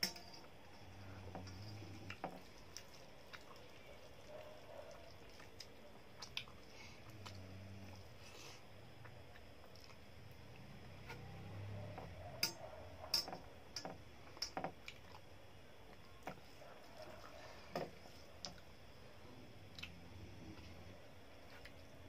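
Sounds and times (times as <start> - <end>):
wet mouth chewing noises: 2.1 - 8.0, 9.0 - 10.1.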